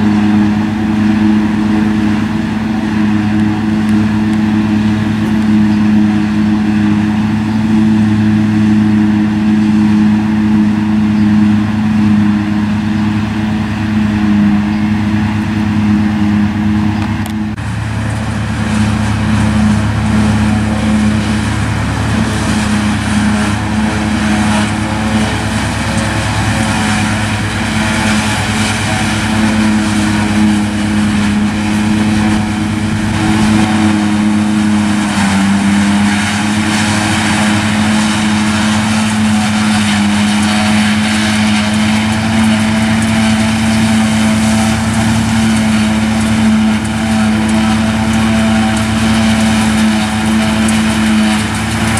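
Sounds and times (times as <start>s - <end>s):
diesel engine running under load: 0.0s - 51.9s
harvester chopper and blower: 0.0s - 51.9s.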